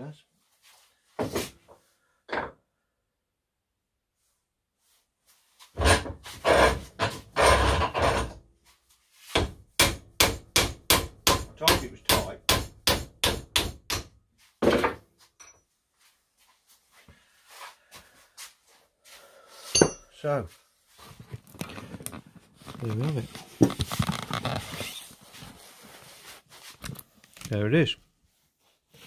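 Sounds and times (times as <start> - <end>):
hammer striking metal: 9.8 - 14.2, 19.8 - 20.2.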